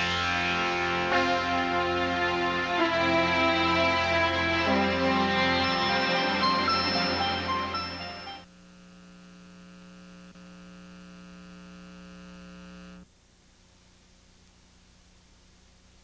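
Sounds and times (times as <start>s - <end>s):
soundtrack music: 0.0s - 8.4s
electrical mains hum: 6.5s - 16.0s.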